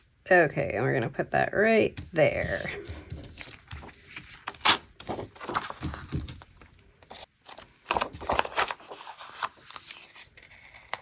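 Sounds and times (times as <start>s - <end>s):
paper rustling: 2.2s - 11.0s.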